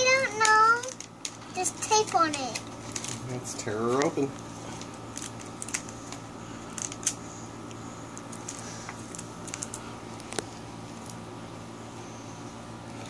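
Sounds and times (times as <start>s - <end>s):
plastic bag crinkling: 0.0s - 7.2s, 8.2s - 11.2s
faint steady hum: 0.0s - 13.0s.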